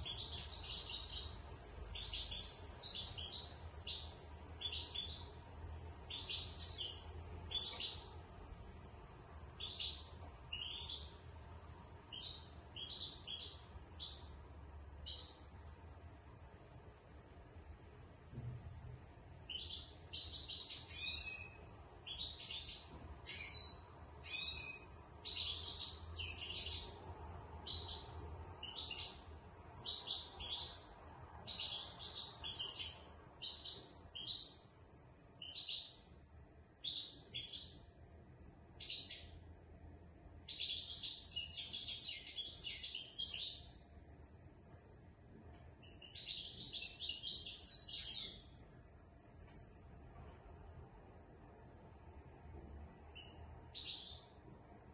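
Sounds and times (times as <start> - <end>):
goldfinch twittering song: 0.0 - 1.4, 2.0 - 5.4, 6.1 - 8.1, 9.6 - 11.2, 45.8 - 48.5.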